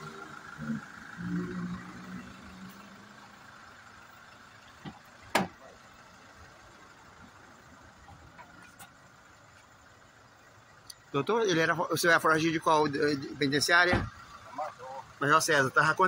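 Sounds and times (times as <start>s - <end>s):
vehicle idling hum: 0.0s - 16.0s.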